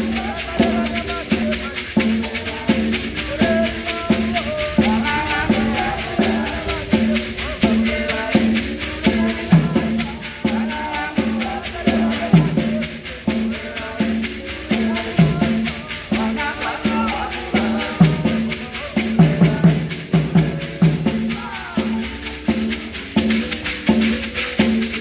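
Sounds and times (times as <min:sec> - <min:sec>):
gourd shakers: 0:00.0 - 0:25.0
mbira notes: 0:00.0 - 0:25.0
tall drum beats: 0:00.0 - 0:25.0
voices singing: 0:00.0 - 0:25.0.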